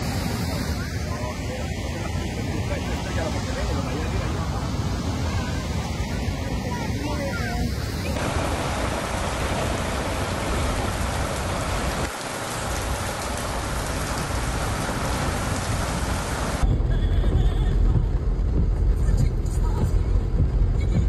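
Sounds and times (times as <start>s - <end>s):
heavy rain on pavement: 0.0s - 0.6s, 8.1s - 16.7s
low rumble inside moving car: 16.3s - 21.0s.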